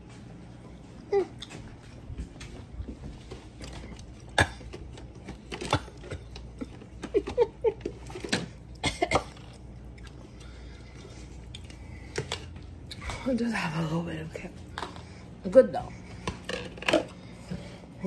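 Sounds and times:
person coughing: 8.8 - 9.5.

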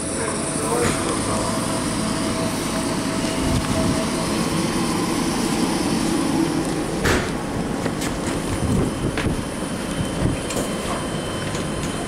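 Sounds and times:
train wheels on rails: 0.0 - 12.0.

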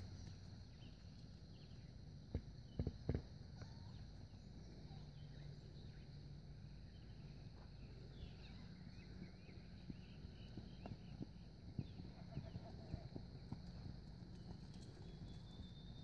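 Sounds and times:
birds chirping: 2.6 - 16.0
horse hoofbeats on sand: 9.0 - 16.0.

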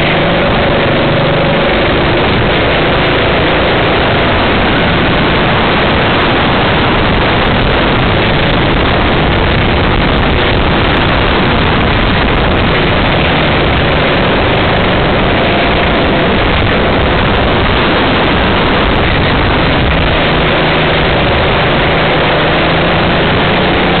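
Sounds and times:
racing kart engine: 0.0 - 24.0
wind noise: 0.0 - 24.0.

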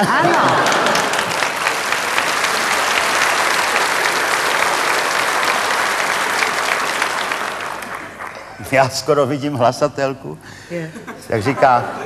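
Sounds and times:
audience laughter: 0.0 - 1.6, 10.9 - 12.0
audience applauding: 0.0 - 9.4.

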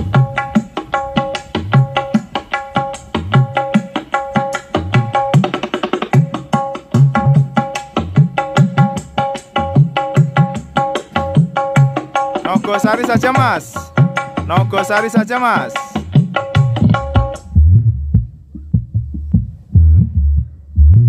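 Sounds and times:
fast hand-drum rhythm: 0.0 - 21.0
low kick drums: 16.1 - 21.0.

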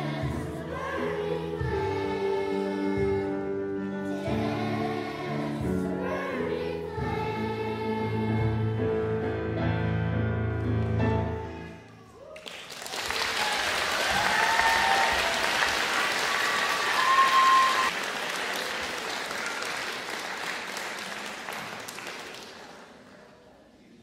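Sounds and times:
audience cheering: 12.2 - 20.0
audience applauding: 12.3 - 23.0.

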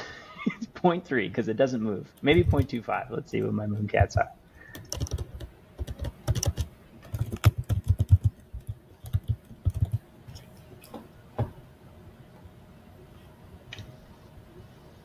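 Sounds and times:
computer keyboard typing: 2.2 - 2.8, 4.7 - 10.5.

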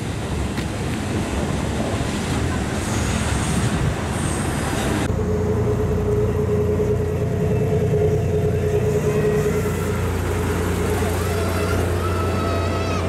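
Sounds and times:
wind noise on microphone: 0.0 - 5.1
diesel railcar engine hum: 0.0 - 13.0
mid-pitched whine: 5.1 - 12.0.

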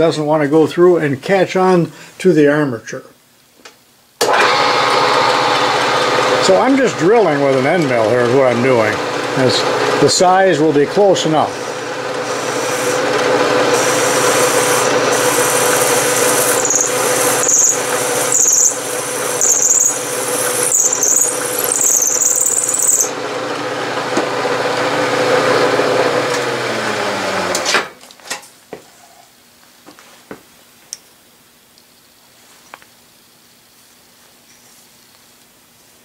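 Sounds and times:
milling machine motor hum: 4.2 - 27.7
high-pitched cutting squeal: 11.4 - 13.0, 13.7 - 23.2.

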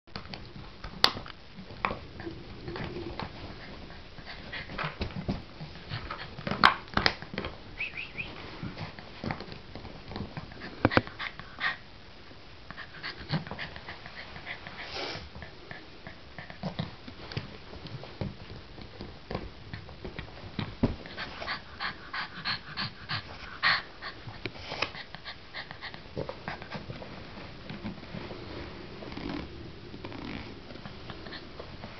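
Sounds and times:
puppy panting: 12.7 - 16.9, 21.0 - 27.0.

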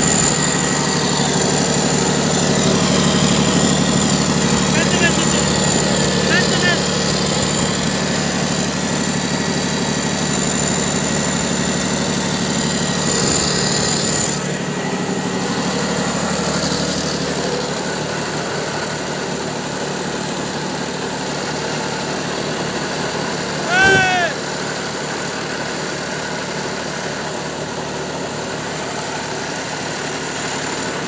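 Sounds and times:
diesel engine running: 0.0 - 22.5, 23.1 - 24.4.

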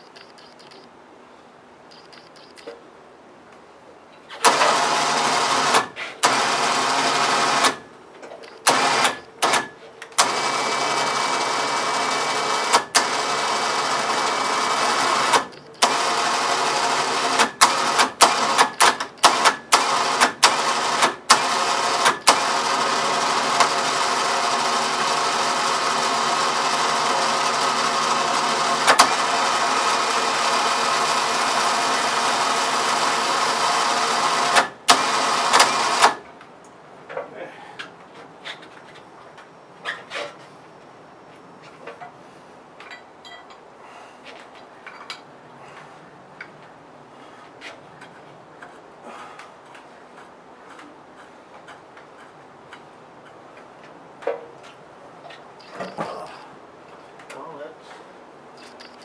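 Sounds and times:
electric winch motor whirring: 4.4 - 7.9, 8.5 - 36.2.

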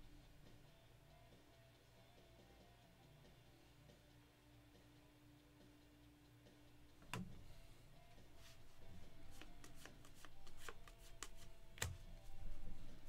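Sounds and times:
trading cards flicking: 8.4 - 13.0.

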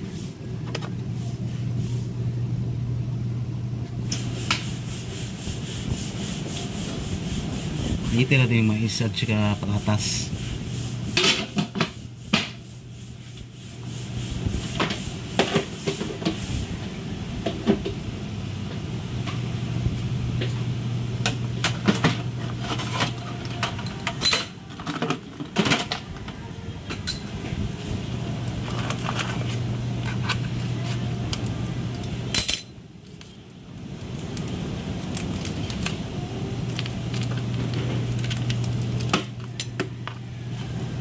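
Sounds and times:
steady low hum: 0.0 - 41.0
metal utensils clattering: 21.9 - 26.0.

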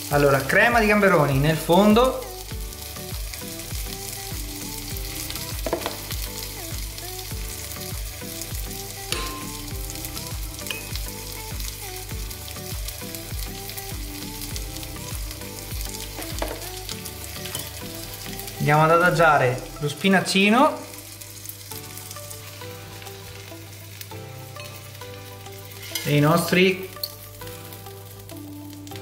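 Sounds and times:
background music with a beat: 0.0 - 18.9
prawns sizzling in a frying pan: 0.0 - 29.0.

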